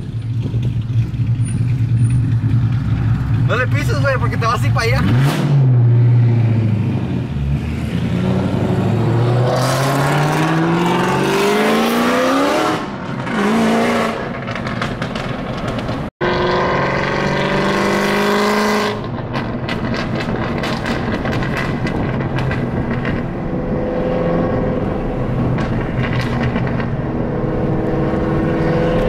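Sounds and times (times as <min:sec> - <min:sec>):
car engine accelerating hard: 0:04.8 - 0:14.2, 0:16.2 - 0:29.0.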